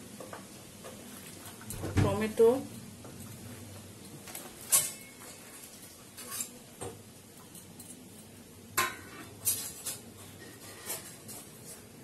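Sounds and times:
metal bowls clinking and knocking: 4.6 - 11.4.

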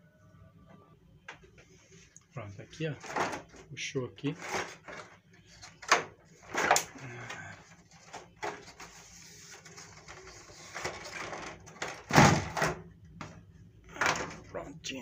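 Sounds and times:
plastic knocking and scraping: 3.0 - 3.6, 4.3 - 7.0, 7.9 - 14.5.

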